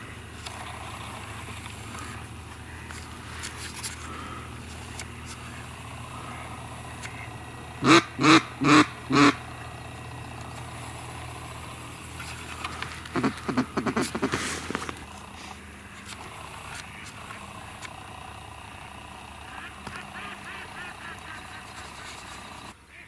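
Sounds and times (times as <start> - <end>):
steady low hum: 0.0 - 23.0
duck quacks: 6.2 - 9.4, 13.1 - 14.4, 19.4 - 22.3.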